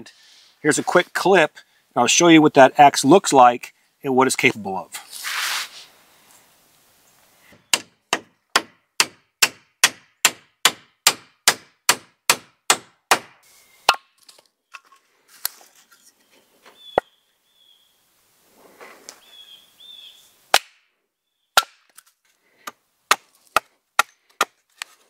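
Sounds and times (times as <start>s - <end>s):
axe chopping wood: 7.6s - 14.1s, 20.5s - 20.8s, 21.6s - 22.0s, 22.6s - 25.0s.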